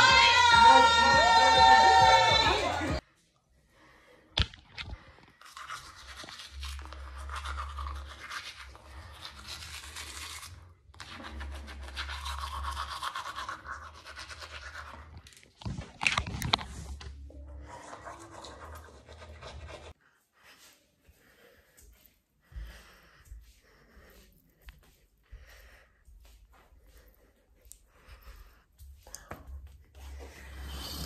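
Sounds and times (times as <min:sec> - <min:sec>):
teeth being brushed: 0:05.4 - 0:15.8, 0:17.6 - 0:20.0.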